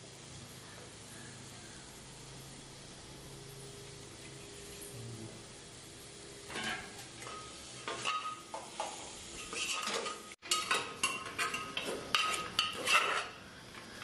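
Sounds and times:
ladle clanking against pot: 0:06.5 - 0:08.7, 0:09.4 - 0:13.4
ladle scraping in metal pot: 0:06.5 - 0:13.5.

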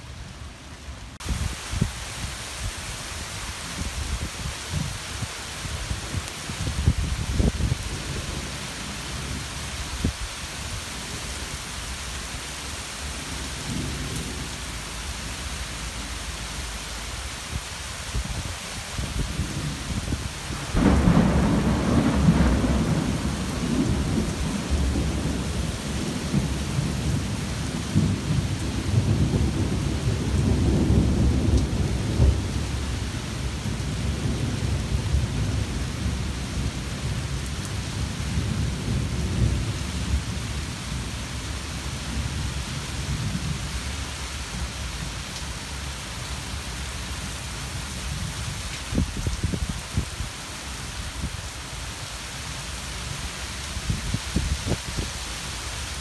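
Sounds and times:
heavy rain: 0:00.0 - 0:56.0
thunder rumbling: 0:19.0 - 0:37.4.

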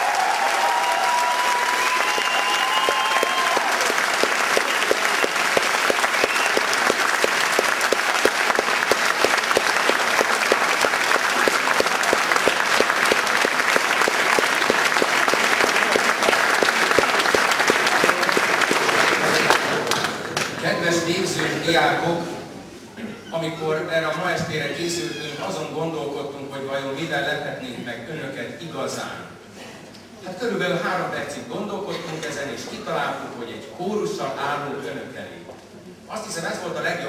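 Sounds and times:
crowd clapping in unison: 0:00.0 - 0:20.6
audience applauding: 0:00.0 - 0:20.7.

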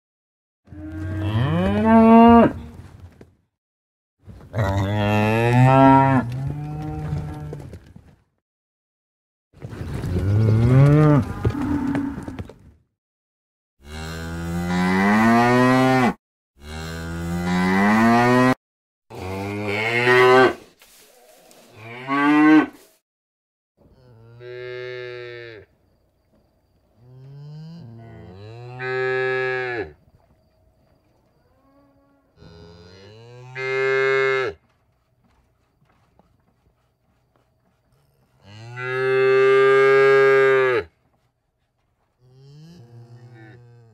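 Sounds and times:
cattle mooing: 0:42.2 - 0:43.9.

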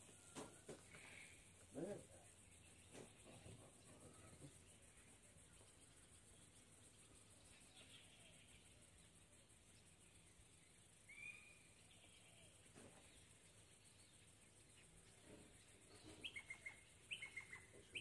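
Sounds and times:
birds calling: 0:14.8 - 0:18.0.

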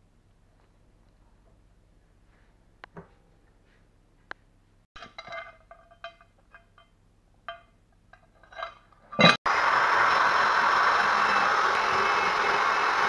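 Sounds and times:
electric drill grinding metal: 0:09.2 - 0:13.0.

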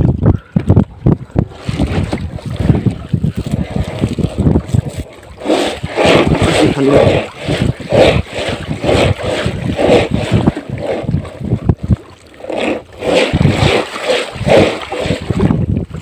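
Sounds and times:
wind rumble on microphone: 0:00.0 - 0:16.0
wet fishing net swishing: 0:13.0 - 0:15.4.

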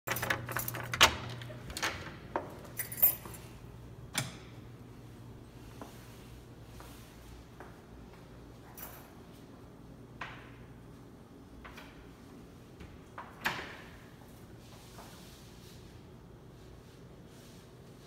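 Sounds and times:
keys and door latch clicking: 0:00.1 - 0:03.5.

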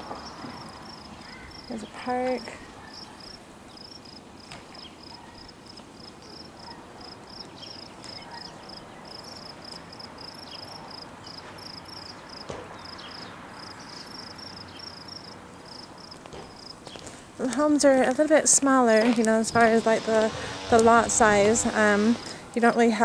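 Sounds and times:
insect chirping: 0:00.0 - 0:17.0.

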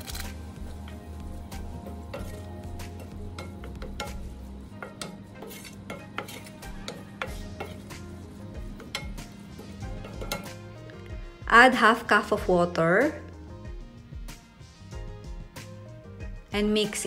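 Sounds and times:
wooden spoon scraping a pan: 0:00.0 - 0:11.0
meat sizzling: 0:00.0 - 0:11.2.

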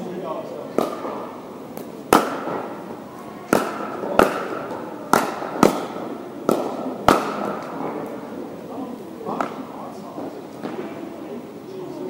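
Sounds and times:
paddles hitting plastic ball: 0:00.7 - 0:08.3, 0:09.2 - 0:10.8.

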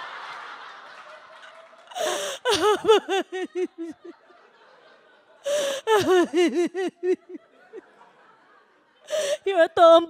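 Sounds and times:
sharp gasping breath: 0:01.9 - 0:02.5, 0:05.4 - 0:06.0, 0:09.1 - 0:09.5
woman mock sobbing: 0:02.0 - 0:04.0, 0:05.5 - 0:07.4.

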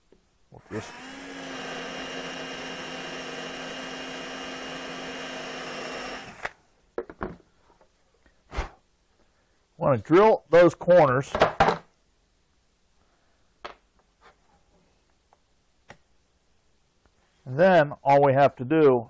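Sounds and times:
cordless drill spinning: 0:00.6 - 0:06.6.

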